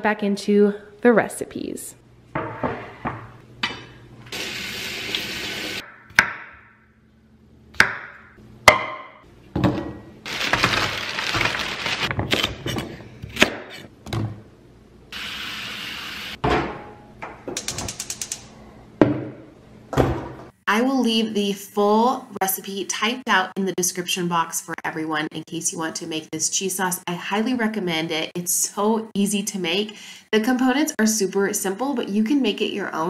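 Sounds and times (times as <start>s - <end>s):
water running at sink: 4.3s - 5.8s.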